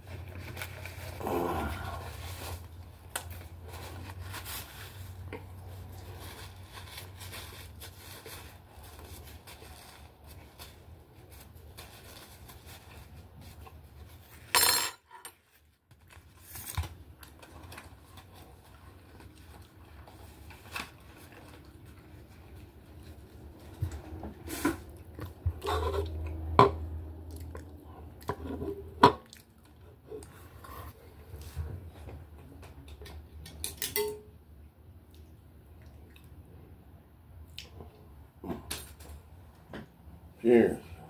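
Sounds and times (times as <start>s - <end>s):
dish and utensils clinking: 33.5s - 34.3s.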